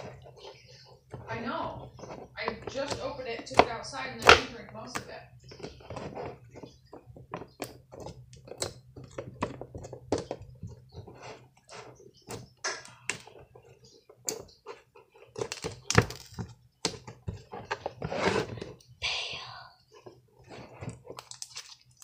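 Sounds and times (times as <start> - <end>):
slime squishing and popping: 21.0 - 22.0.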